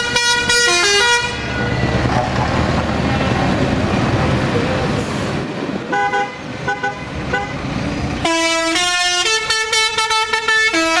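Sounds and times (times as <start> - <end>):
traffic noise: 0.0 - 11.0
vehicle air horn toots: 8.2 - 11.0.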